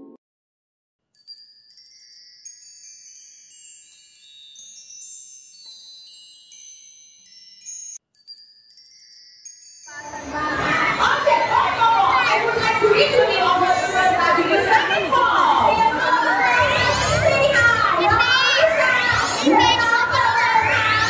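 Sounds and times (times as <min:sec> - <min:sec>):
high bright chime tones: 0:01.2 - 0:10.5.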